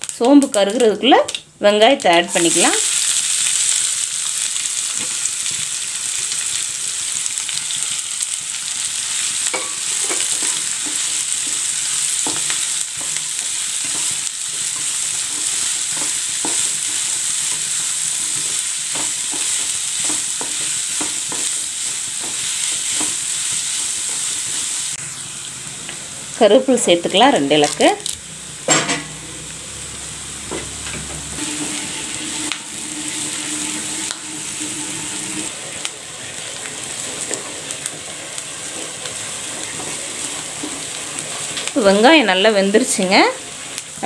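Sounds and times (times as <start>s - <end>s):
onions sizzling in oil: 0.0s - 44.0s
spatula stirring and scraping: 9.5s - 24.9s, 37.0s - 41.7s.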